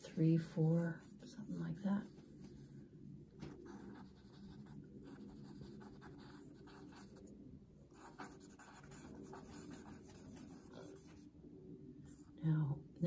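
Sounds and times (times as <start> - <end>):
charcoal scratching on paper: 0.4 - 2.7, 8.0 - 11.2.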